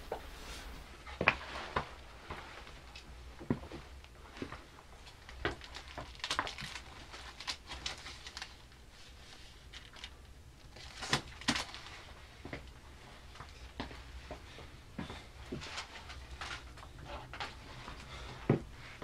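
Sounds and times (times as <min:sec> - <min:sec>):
rustling: 0:00.0 - 0:03.0.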